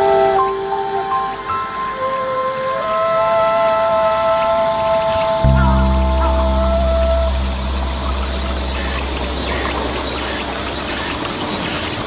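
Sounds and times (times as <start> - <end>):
low steady hum: 5.4 - 11.5.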